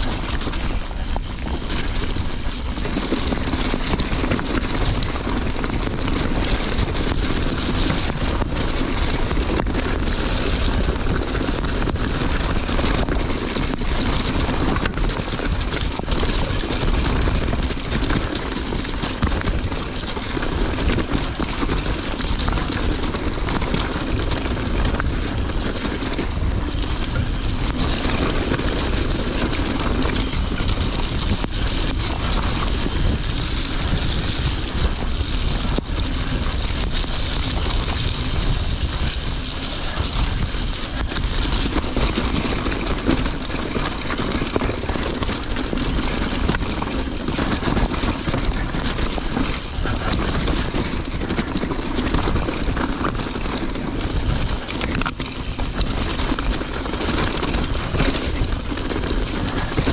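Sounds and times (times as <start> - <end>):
bike knocking over rocks: 0.0 - 59.9
bike tyre noise: 0.0 - 59.9
wind buffeting microphone: 0.0 - 59.9.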